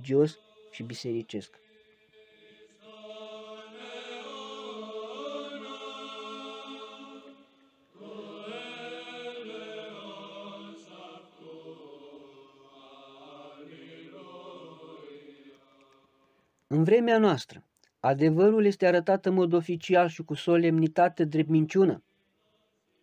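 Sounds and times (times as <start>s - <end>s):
choir chanting held notes: 0.0s - 16.4s.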